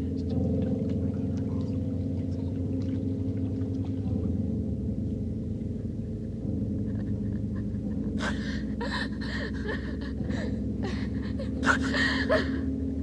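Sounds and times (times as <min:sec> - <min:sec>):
low steady drone: 0:00.0 - 0:13.0
woman gasping and panting: 0:08.2 - 0:12.6.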